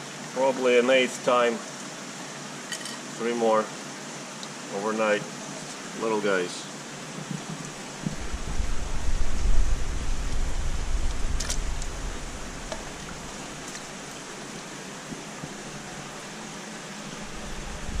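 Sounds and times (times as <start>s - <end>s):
rushing water hiss: 0.0s - 18.0s
low handling rumble: 7.9s - 14.4s, 17.1s - 18.0s.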